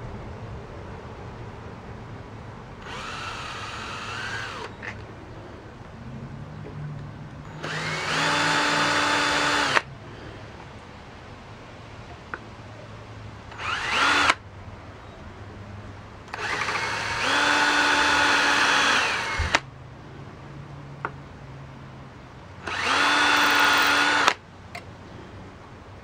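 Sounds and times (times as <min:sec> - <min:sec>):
cordless drill drilling stone: 0:02.8 - 0:05.0, 0:07.5 - 0:09.9, 0:13.5 - 0:14.4, 0:16.3 - 0:19.6, 0:22.6 - 0:24.4
drill stopping click: 0:07.6 - 0:09.8, 0:16.3 - 0:19.6, 0:22.6 - 0:24.4.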